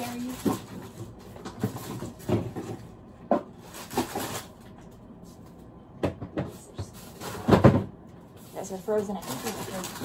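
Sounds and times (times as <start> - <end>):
frozen packages knocking: 0.0 - 4.8, 8.7 - 10.0
plastic bags rustling: 0.0 - 5.4, 6.6 - 10.0.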